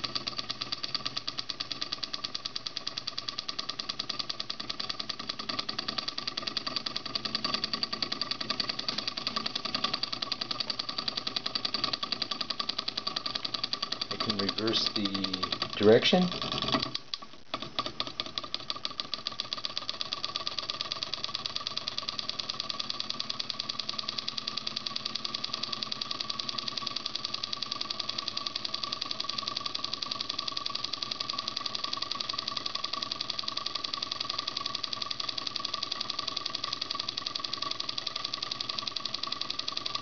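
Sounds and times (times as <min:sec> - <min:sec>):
solenoid engine rapid clicking: 0:00.0 - 0:40.0
steady whine: 0:05.4 - 0:17.8.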